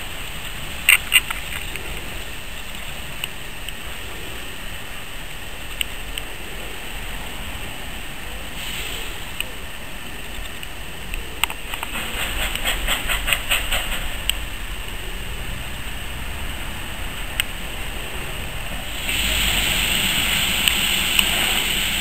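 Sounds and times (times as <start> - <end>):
wheels clicking over rail joints: 0.0 - 4.1, 8.6 - 22.0
steam hiss: 6.7 - 9.8, 11.6 - 22.0
steam locomotive running: 11.6 - 15.9, 16.6 - 22.0.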